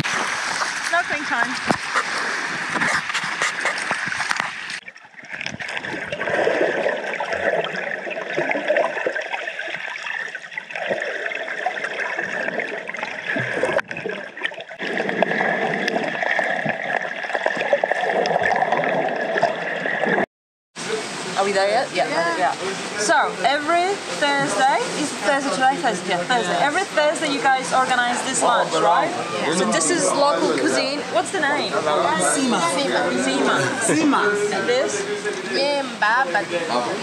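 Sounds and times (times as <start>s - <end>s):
water gurgling and splashing: 0.0s - 37.0s.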